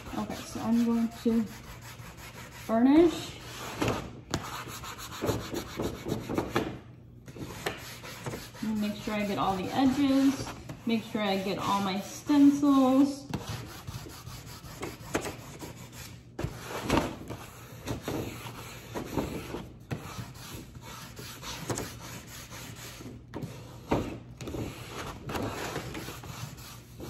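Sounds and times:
scraper rubbing on paper: 0.0s - 3.8s, 4.4s - 6.6s, 7.3s - 12.5s, 13.3s - 27.0s.

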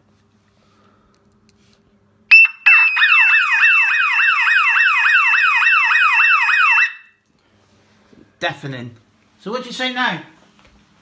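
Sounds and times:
siren falling pitch sweep: 2.3s - 7.1s.

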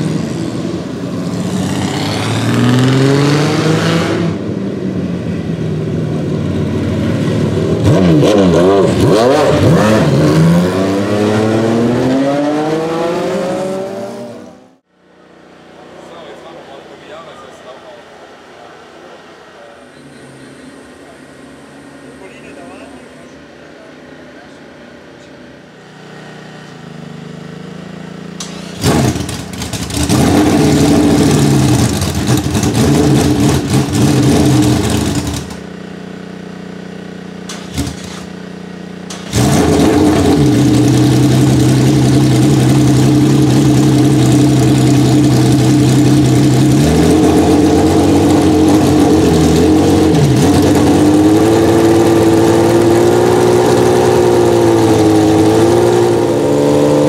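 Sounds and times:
racing engine starting and revving: 0.0s - 4.6s, 6.2s - 14.8s, 26.2s - 35.7s, 37.4s - 38.4s, 39.0s - 57.0s.

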